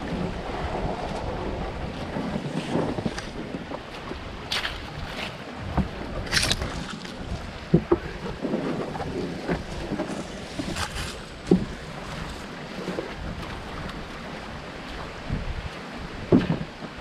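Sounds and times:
water moving around canoe: 0.0 - 17.0
wind on microphone: 0.0 - 17.0
paddle knocking on hull: 5.6 - 17.0.

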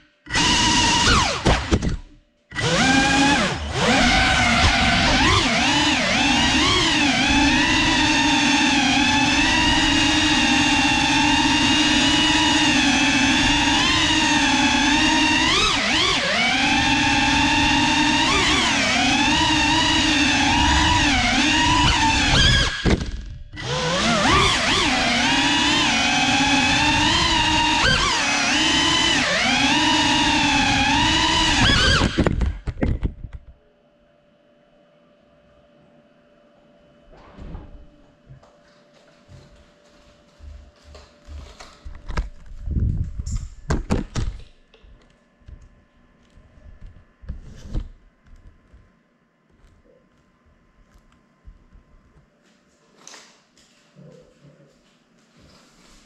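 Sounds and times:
drone motors whining: 0.0 - 33.0.

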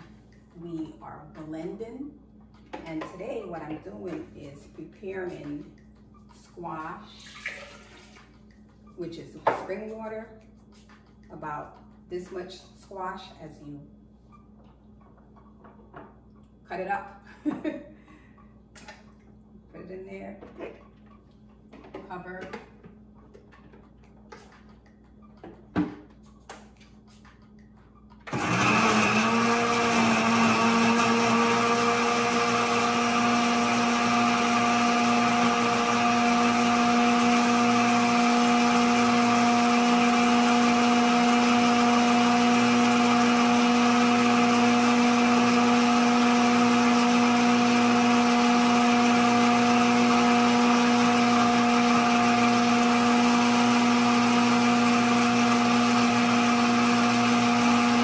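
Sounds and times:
blender whirring: 28.3 - 58.0.

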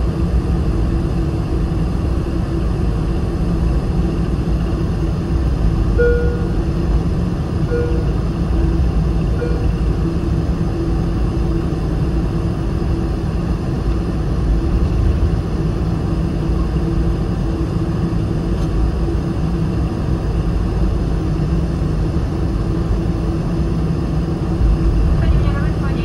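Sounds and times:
aircraft engine hum and rumble: 0.0 - 26.0.

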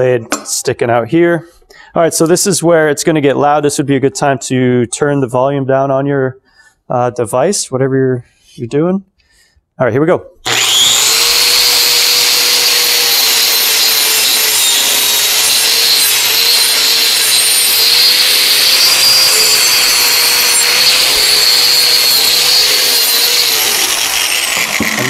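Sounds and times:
angle grinder motor whine: 10.4 - 25.0.

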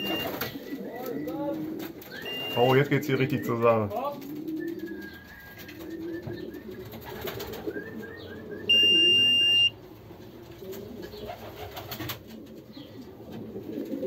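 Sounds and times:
electronic clock beep: 0.0 - 0.4, 2.2 - 2.8, 8.7 - 9.8
pigeons cooing: 0.0 - 14.0.

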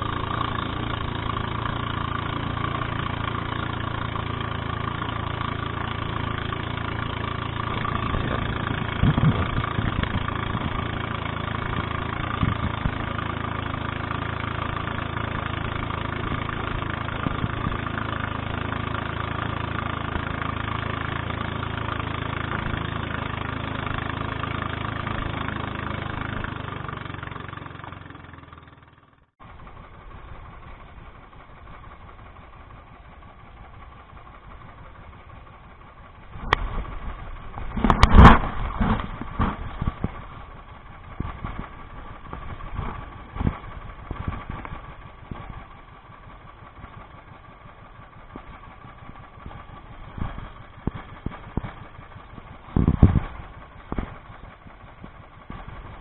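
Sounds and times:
small boat engine running: 0.0 - 56.0
thumps: 37.6 - 40.3.

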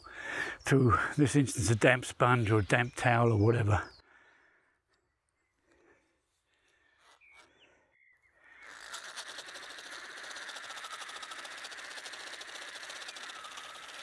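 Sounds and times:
fishing reel whirring and clicking: 8.6 - 14.0.

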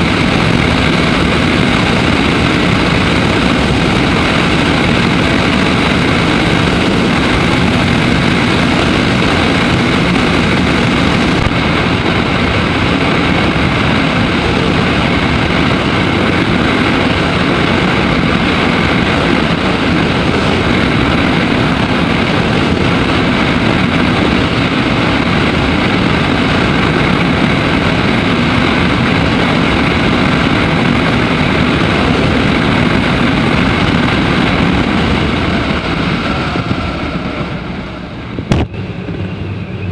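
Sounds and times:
motorcycle engine drone: 0.0 - 39.9
road noise: 0.0 - 39.9
wind rush on microphone: 0.0 - 39.9.

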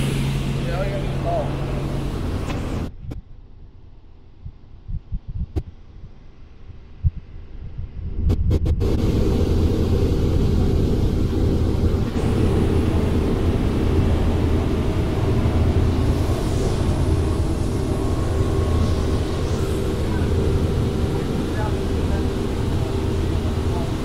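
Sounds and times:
helicopter engine and rotor drone: 0.0 - 2.9, 8.8 - 24.0.

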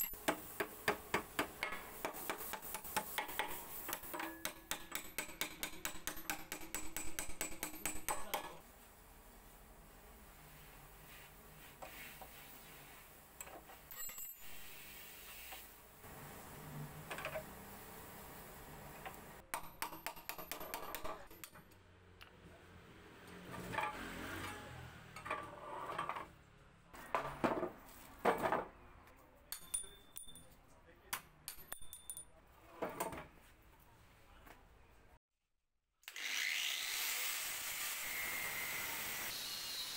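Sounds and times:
hammer striking steel: 0.0 - 8.6, 29.5 - 30.5.

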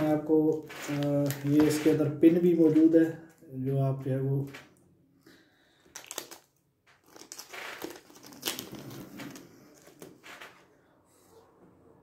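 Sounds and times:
plastic packaging crinkling: 0.0 - 3.4, 5.8 - 10.5.

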